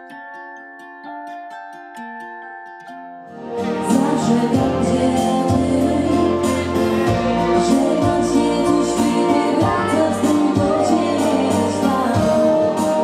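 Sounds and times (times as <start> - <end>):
band playing a song: 3.4 - 13.0
steady drum beat: 3.6 - 13.0.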